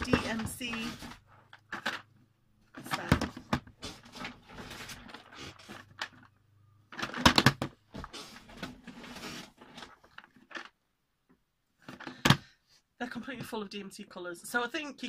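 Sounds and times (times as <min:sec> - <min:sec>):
plastic boxes clattering: 0:00.0 - 0:06.3, 0:06.9 - 0:10.8.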